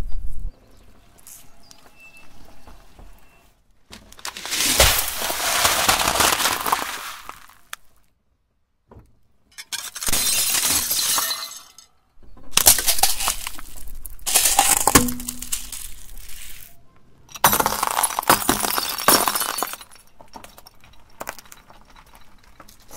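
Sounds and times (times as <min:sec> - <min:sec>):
plates crunching under wheel: 0:03.8 - 0:08.0, 0:09.6 - 0:22.9
glass jar cracking under tyre: 0:03.9 - 0:08.0, 0:09.5 - 0:22.9
beads scattering with glassy clinking: 0:12.6 - 0:16.7, 0:17.4 - 0:22.9.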